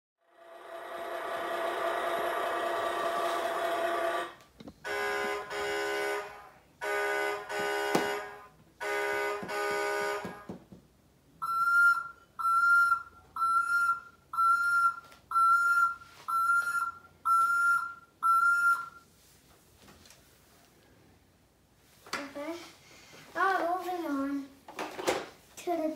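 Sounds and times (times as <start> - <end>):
toy horn blasts: 4.2 - 10.5
short high-pitched beeps: 11.4 - 19.0.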